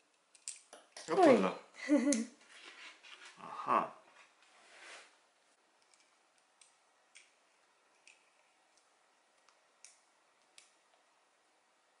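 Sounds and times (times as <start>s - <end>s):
plastic toy parts clicking: 0.3s - 1.1s.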